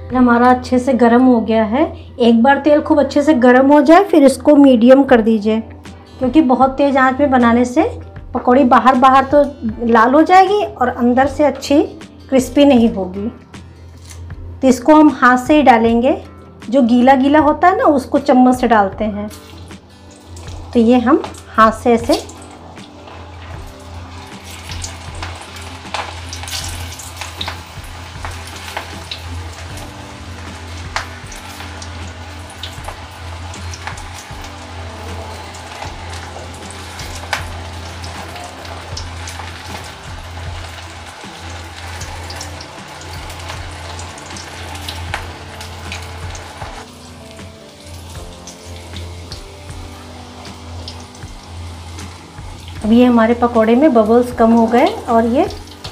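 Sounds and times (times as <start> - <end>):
oil sizzling with crackles: 13.6 - 15.8, 16.7 - 55.9.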